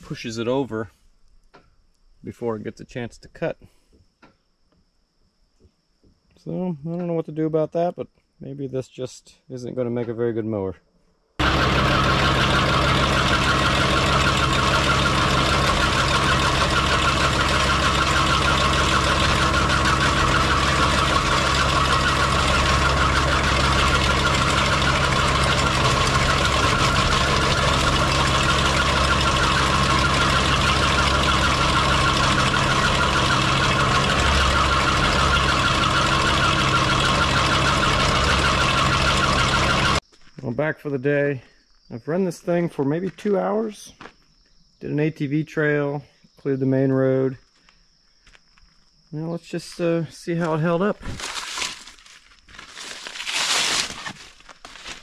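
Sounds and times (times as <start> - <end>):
mower chattering through branches: 11.4 - 40.0, 50.4 - 55.0
skid steer engine running: 11.4 - 40.0.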